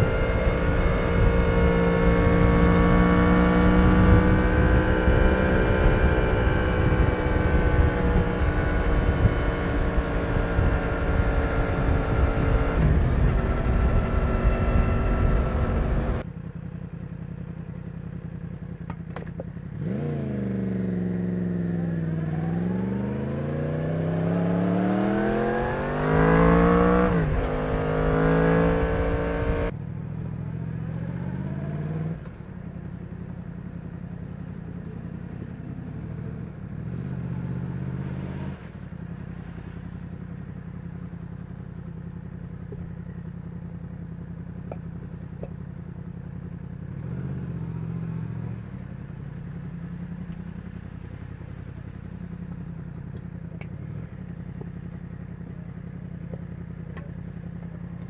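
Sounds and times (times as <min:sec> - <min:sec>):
motorcycle engine revving: 0:00.0 - 0:16.7, 0:17.4 - 0:58.0
motorcycle engine idling: 0:16.2 - 0:22.5, 0:29.7 - 0:31.5, 0:32.2 - 0:37.8, 0:38.7 - 0:58.0.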